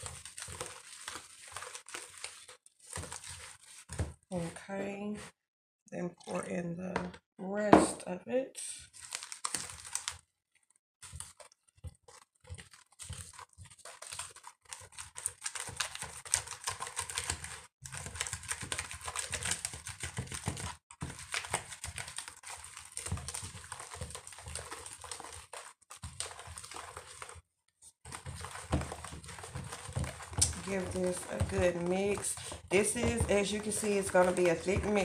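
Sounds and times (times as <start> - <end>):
whisk beating batter in bowl: 0.0 - 4.5, 11.0 - 27.4, 28.0 - 35.0.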